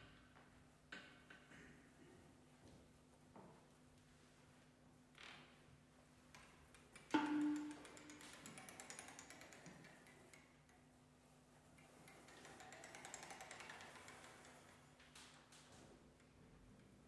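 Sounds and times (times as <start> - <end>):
soft clicking and tapping music: 6.3 - 11.0, 11.6 - 17.0.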